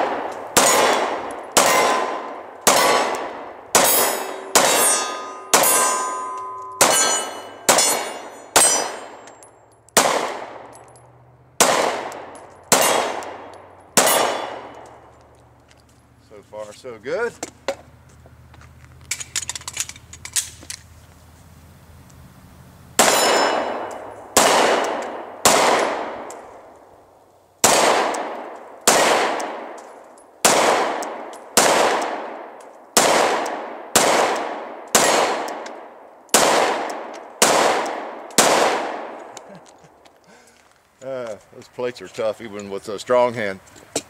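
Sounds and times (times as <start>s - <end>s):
pistol shots with long echo: 0.0s - 9.3s, 10.0s - 10.7s, 11.6s - 15.1s, 23.0s - 26.5s, 27.6s - 39.4s.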